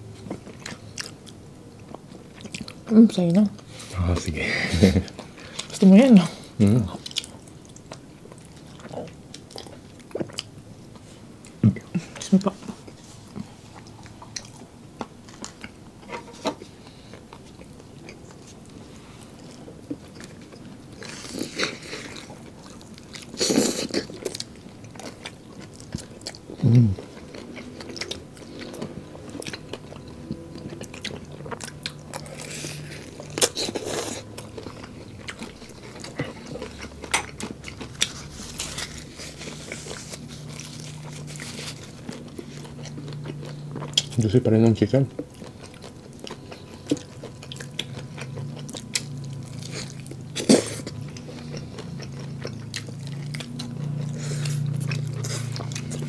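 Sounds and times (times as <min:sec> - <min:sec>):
crispy chicken bitten and chewed: 0:45.2 - 0:56.0.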